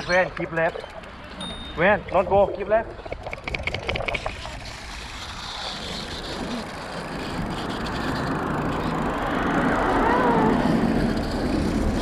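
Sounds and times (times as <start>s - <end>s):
bicycle tyre noise: 3.0s - 12.0s
wind rushing over microphone: 6.0s - 12.0s.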